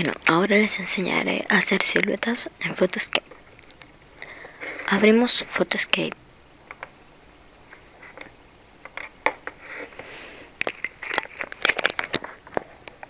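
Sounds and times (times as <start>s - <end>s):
computer keyboard and mouse clicks: 6.7s - 6.9s, 8.2s - 9.4s.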